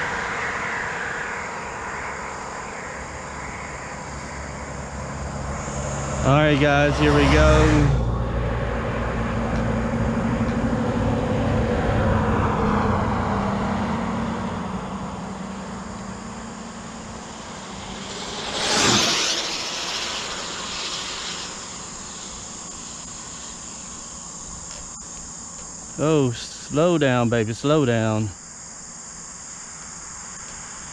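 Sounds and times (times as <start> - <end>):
rc car motor whine: 0.0 - 8.4, 14.2 - 26.0
rc car whooshing past: 0.0 - 25.3.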